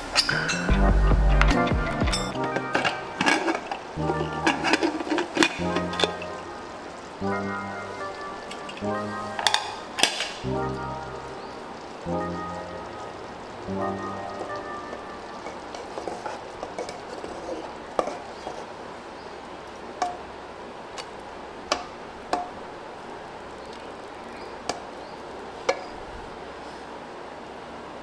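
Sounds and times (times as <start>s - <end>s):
steady low hiss: 0.0s - 28.0s
stirring in cooking pot: 2.3s - 6.4s, 14.3s - 18.8s.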